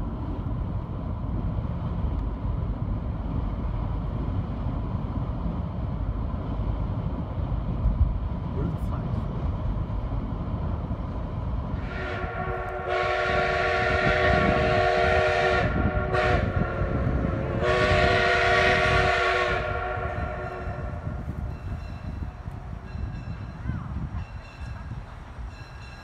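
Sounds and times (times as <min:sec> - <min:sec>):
steam locomotive whistle: 0:11.8 - 0:21.2.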